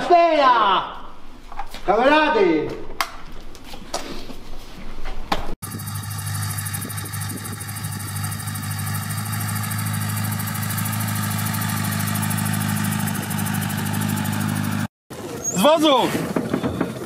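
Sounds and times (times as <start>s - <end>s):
truck engine running: 5.6s - 14.9s.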